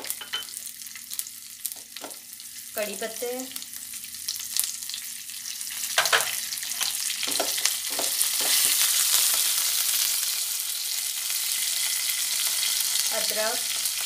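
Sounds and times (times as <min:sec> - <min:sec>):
spices sizzling in hot oil: 0:00.0 - 0:14.0
spatula scraping and tapping pan: 0:06.0 - 0:08.8.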